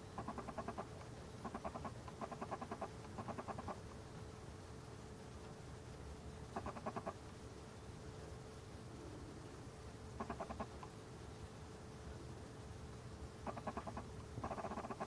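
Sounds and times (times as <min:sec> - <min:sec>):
fox cub whimpering: 0:10.2 - 0:10.7, 0:13.5 - 0:15.0.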